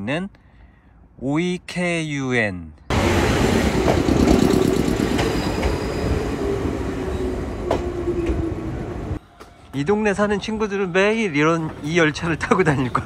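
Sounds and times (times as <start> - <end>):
electric train rumbling on rails: 2.9 - 13.0.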